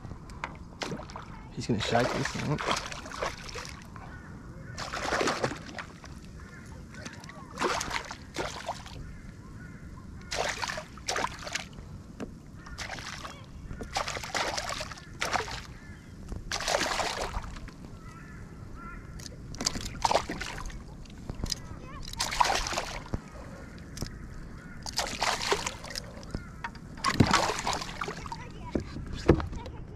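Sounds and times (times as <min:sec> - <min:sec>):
fish splashing at water surface: 0:00.8 - 0:03.9, 0:04.8 - 0:06.1, 0:06.9 - 0:09.0, 0:10.3 - 0:11.8, 0:12.6 - 0:15.8, 0:16.5 - 0:17.7, 0:19.6 - 0:20.8, 0:21.4 - 0:23.2, 0:24.8 - 0:28.5.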